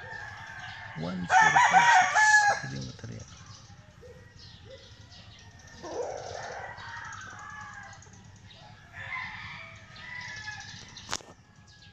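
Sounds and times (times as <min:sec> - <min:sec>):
rooster crowing: 0:00.0 - 0:02.8, 0:05.1 - 0:11.2.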